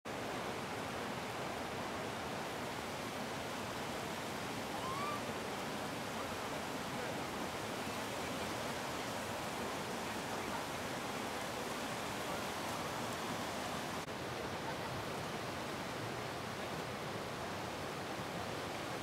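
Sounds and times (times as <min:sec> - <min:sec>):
running water: 0:00.1 - 0:19.0
faint rising call: 0:04.7 - 0:05.3.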